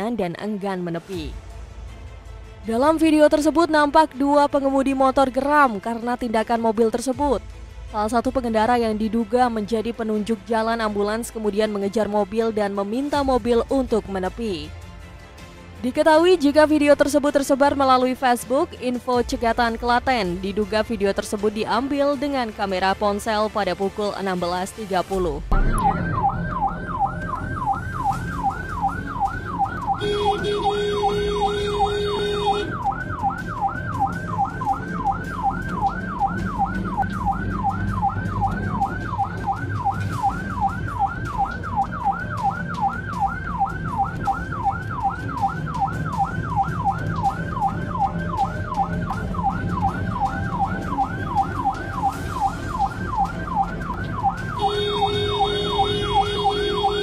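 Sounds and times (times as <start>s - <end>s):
ambulance siren yelping: 25.6s - 57.0s
ambulance horn blasts: 29.9s - 33.0s, 54.5s - 57.0s.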